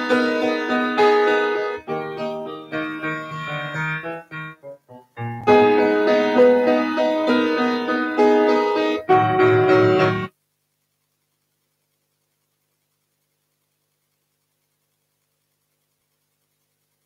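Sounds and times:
grand piano playing chords: 0.0s - 10.3s.

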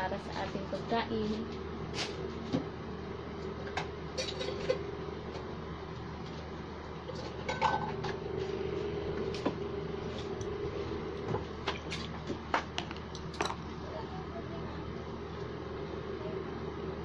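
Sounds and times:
low background hum: 0.0s - 17.0s
dishes clinking: 4.2s - 4.8s, 7.1s - 8.2s.

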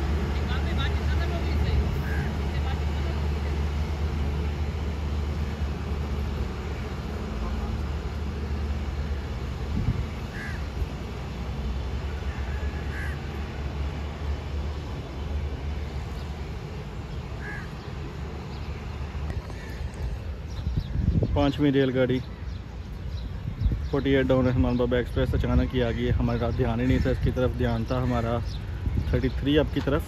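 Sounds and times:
steady low rumble: 0.0s - 30.0s
crow cawing: 2.0s - 2.4s, 10.3s - 10.7s, 12.2s - 13.4s, 17.4s - 17.8s.

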